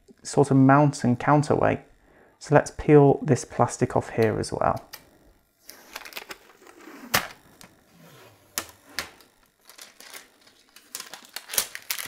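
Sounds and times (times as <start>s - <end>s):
plastic film peeling clicks: 8.6s - 12.0s.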